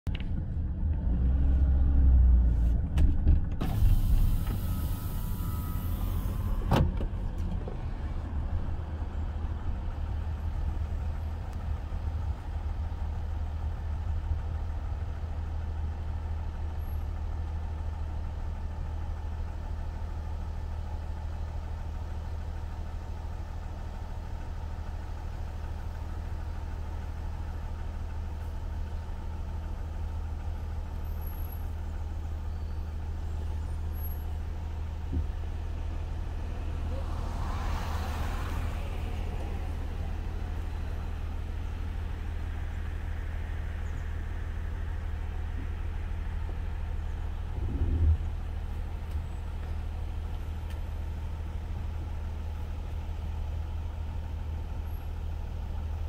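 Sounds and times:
car engine and tyre rumble: 0.0 - 56.0
hiss: 3.7 - 6.5.

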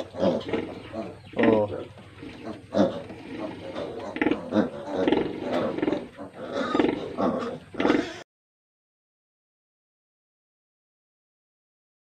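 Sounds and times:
piglets squealing and grunting: 0.0 - 8.3.

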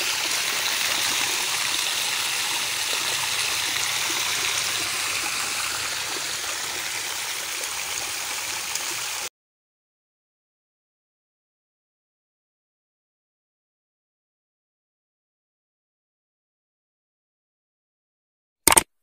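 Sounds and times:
hiss of water spraying: 0.0 - 9.3.

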